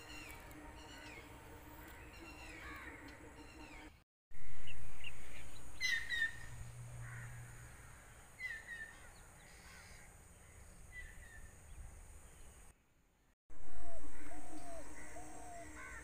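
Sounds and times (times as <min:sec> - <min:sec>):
low steady hum: 0:00.0 - 0:12.7
crows cawing: 0:01.8 - 0:03.1, 0:07.0 - 0:08.2, 0:09.0 - 0:10.1, 0:14.1 - 0:16.0.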